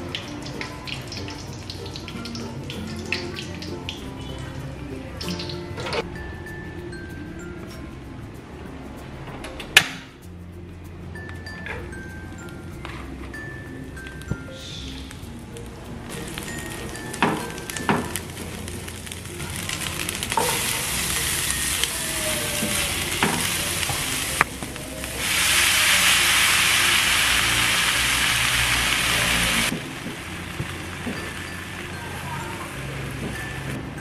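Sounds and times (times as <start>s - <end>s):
food sizzling in hot oil: 0.0s - 4.6s, 16.1s - 33.8s.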